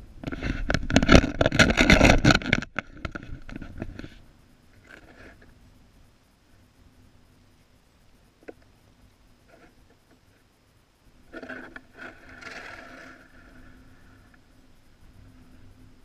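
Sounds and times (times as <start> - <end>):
faint low rumble: 0.0 - 16.0
skis scraping over crusty snow: 11.4 - 13.7.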